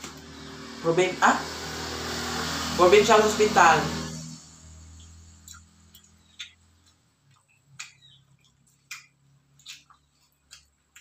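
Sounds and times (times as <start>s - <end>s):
chewing clicks and smacks: 4.9s - 11.0s.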